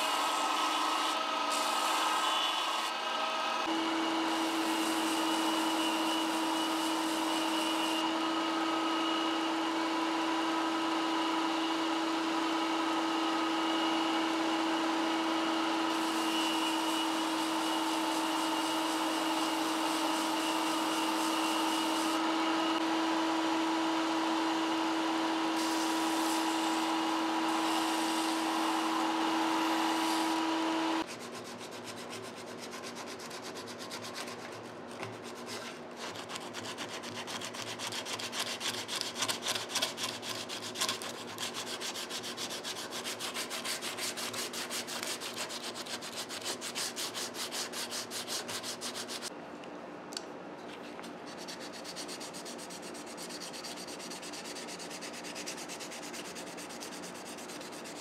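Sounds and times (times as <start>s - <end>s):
belt sander humming: 12.5s - 31.1s
sandpaper rubbing back and forth: 25.6s - 30.4s, 31.0s - 49.3s, 51.3s - 58.0s.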